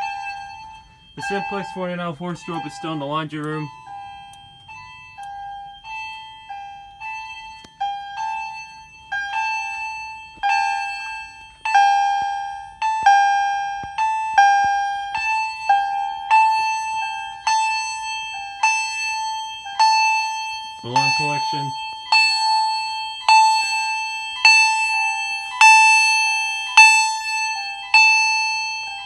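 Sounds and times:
fire alarm chimes: 0.0s - 29.0s.

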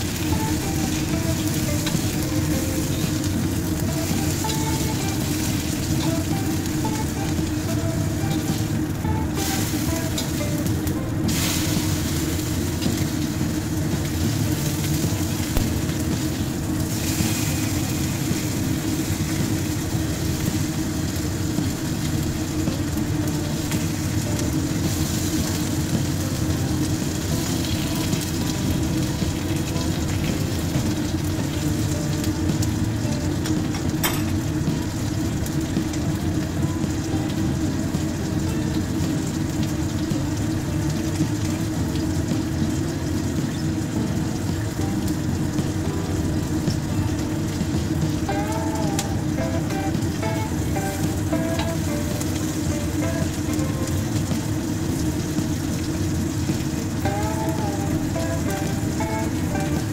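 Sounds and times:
fish sizzling in hot oil: 0.0s - 59.9s.

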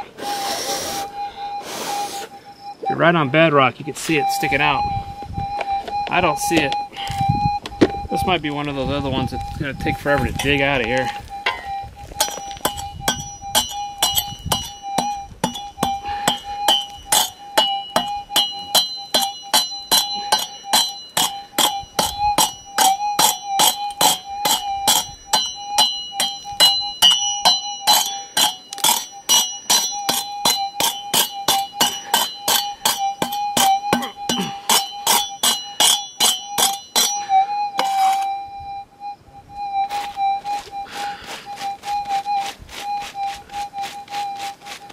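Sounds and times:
metal detector tone: 0.0s - 44.9s
pick striking rock: 10.1s - 38.0s.

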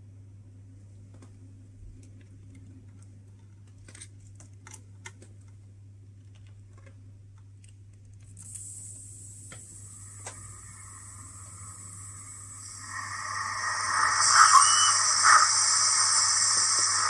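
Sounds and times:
low steady hum: 0.0s - 17.0s
steady hiss: 8.4s - 17.0s.

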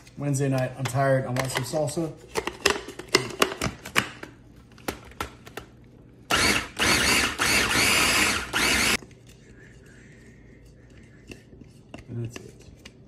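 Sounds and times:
electric food chopper whirring: 6.3s - 9.0s.

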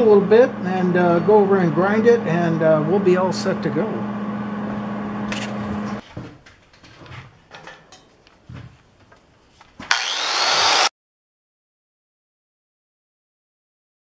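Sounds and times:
low machine hum: 0.0s - 6.0s
angle grinder spinning: 9.9s - 10.9s.

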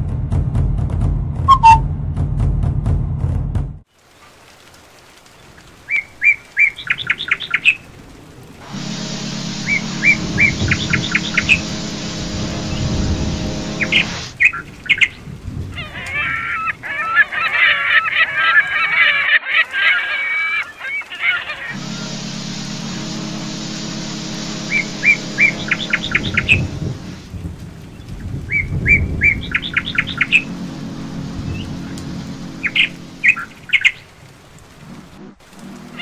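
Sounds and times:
ship's whistle blast: 1.5s - 1.8s, 8.6s - 14.3s, 21.7s - 27.3s, 28.9s - 33.6s
birds chirping: 8.7s - 14.6s, 20.6s - 35.1s.

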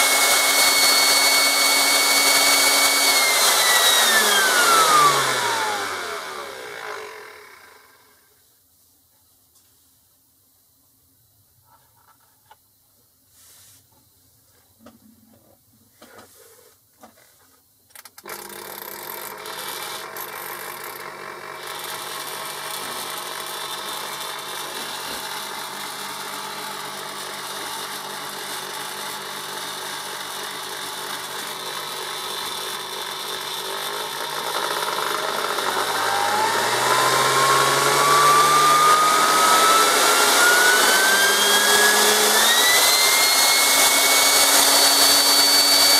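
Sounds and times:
blender motor whining: 0.0s - 8.2s, 18.2s - 45.9s.

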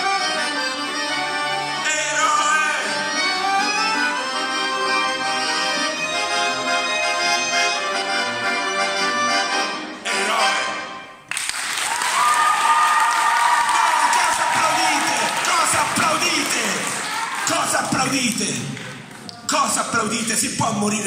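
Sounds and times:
accordion playing a tune: 0.0s - 11.2s.

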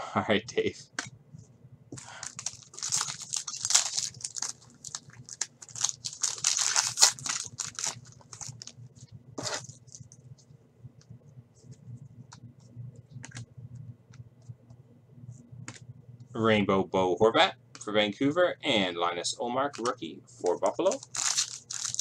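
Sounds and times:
foil wrapper tearing and crinkling: 2.1s - 8.7s, 20.8s - 22.0s.

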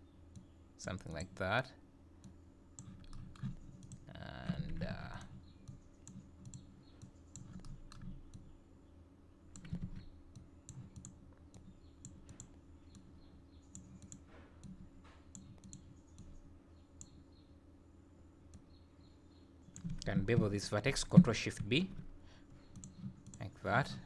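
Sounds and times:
steady low hum: 0.0s - 24.0s
computer mouse clicks: 2.2s - 8.5s, 9.5s - 16.4s, 17.0s - 17.2s, 19.7s - 20.5s, 22.6s - 23.4s.

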